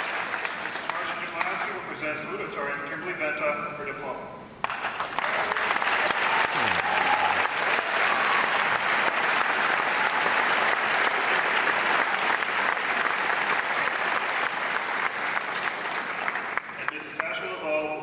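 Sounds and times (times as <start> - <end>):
audience applauding: 0.0 - 1.6, 4.6 - 17.3.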